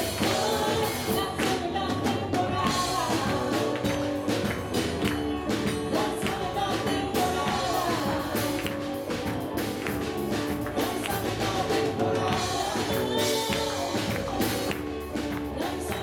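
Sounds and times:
electric guitar: 0.0 - 16.0
keyboard: 0.0 - 16.0
percussion beat: 0.0 - 16.0
woman singing: 0.0 - 16.0
man singing: 5.4 - 9.2, 10.3 - 14.4.

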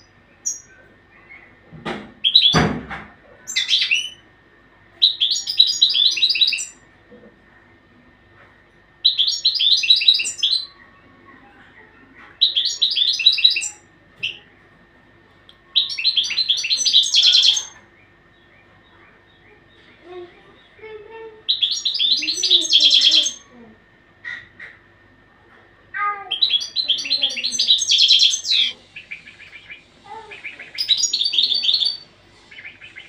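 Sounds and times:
goldfinch twittering song: 15.8 - 18.6, 21.5 - 23.4, 26.3 - 33.0.

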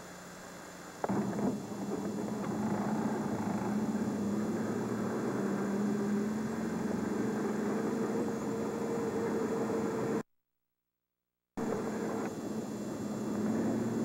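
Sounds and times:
vehicle engine idling: 1.0 - 10.2.

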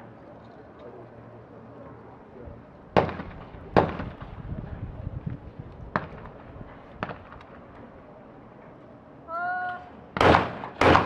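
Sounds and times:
shotgun shots with echo: 3.0 - 4.3, 10.2 - 11.0
faint sharp gunshot reports: 10.2 - 11.0.

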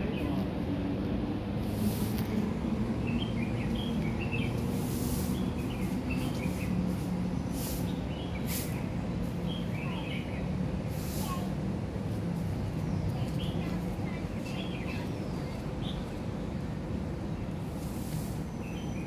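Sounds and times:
distant city traffic hum: 0.0 - 19.0
brief hissing noises: 1.6 - 2.3, 4.8 - 8.9, 10.9 - 11.5, 17.8 - 18.5
small birds chirping: 2.4 - 19.0.

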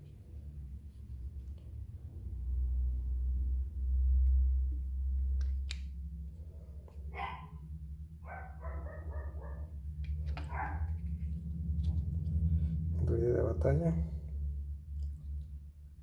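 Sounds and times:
low rumble: 0.2 - 16.0
dog barking: 7.1 - 7.6, 8.2 - 9.7, 10.4 - 10.9.

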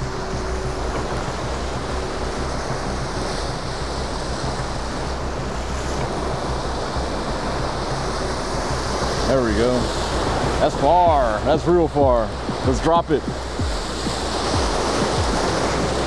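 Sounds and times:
wind buffeting microphone: 0.0 - 16.0
surf breaking on rocks: 9.0 - 16.0.

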